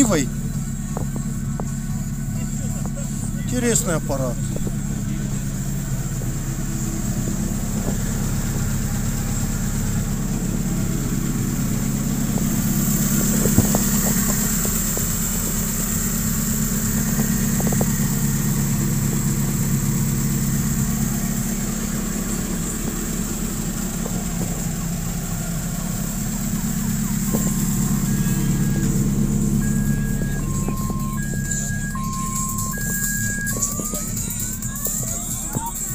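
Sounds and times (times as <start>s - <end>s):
engine idling: 0.0s - 35.9s.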